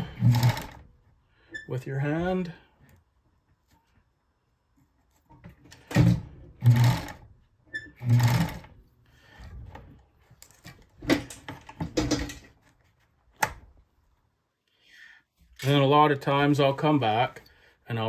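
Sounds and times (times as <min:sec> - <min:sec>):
sewing machine stitching: 0:00.0 - 0:00.9, 0:05.8 - 0:08.8.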